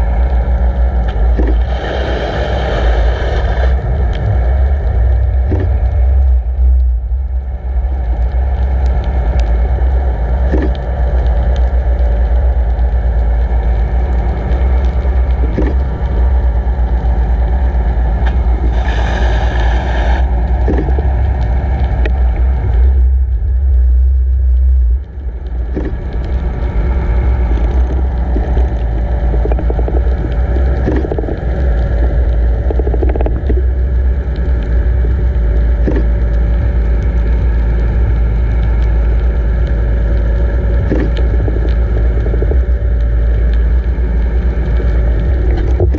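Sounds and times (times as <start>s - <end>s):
boat motor droning underwater: 0.0s - 45.9s
water rushing underwater: 0.0s - 45.9s
faint clicks: 27.5s - 37.2s.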